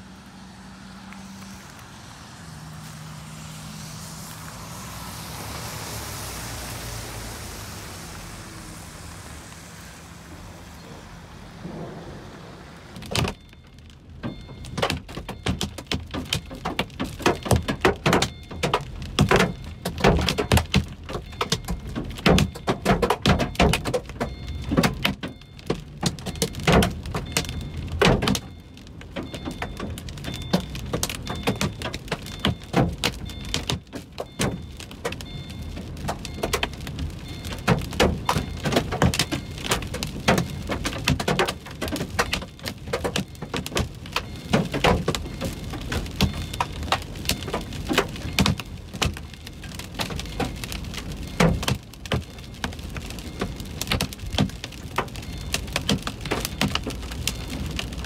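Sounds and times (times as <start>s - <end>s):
car rumbling on wet road: 0.0s - 58.0s
drops tapping on car windshield: 12.9s - 58.0s.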